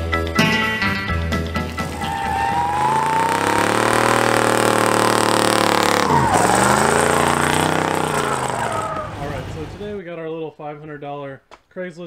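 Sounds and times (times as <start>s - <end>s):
car engine revving hard: 1.6s - 10.0s.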